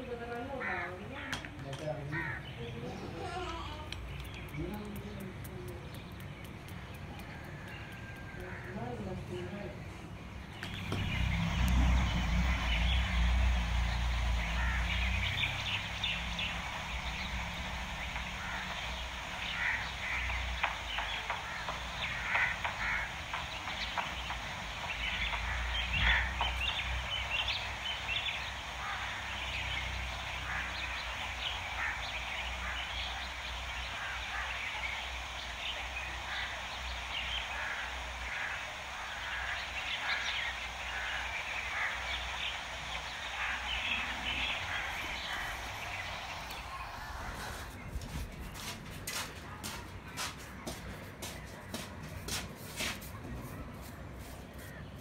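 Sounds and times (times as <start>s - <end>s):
small birds chirping: 0.0s - 55.0s
steady low rumble: 3.9s - 52.2s.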